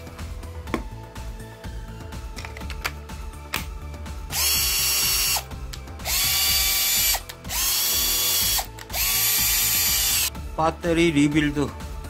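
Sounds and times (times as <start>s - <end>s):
cordless drill motor spinning: 4.3s - 10.3s.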